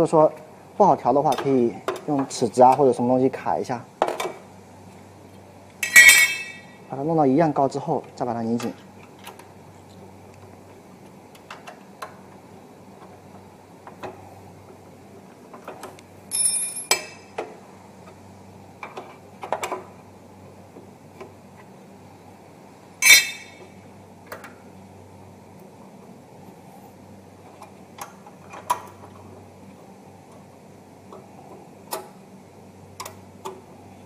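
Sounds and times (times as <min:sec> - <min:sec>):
low steady hum: 0:00.0 - 0:34.0
ringing metallic clank: 0:05.8 - 0:06.8, 0:16.3 - 0:17.2, 0:23.0 - 0:23.6.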